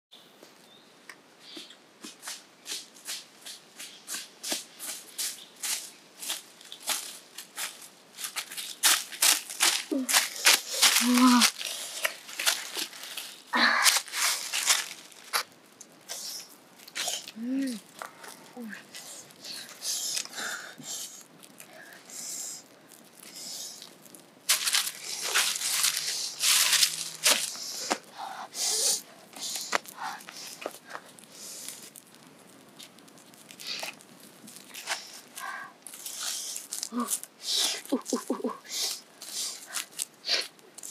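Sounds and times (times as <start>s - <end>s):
footsteps crunching through dry leaves: 2.0s - 15.6s, 24.5s - 28.2s, 28.8s - 40.9s
corn husks rustling: 3.8s - 40.9s.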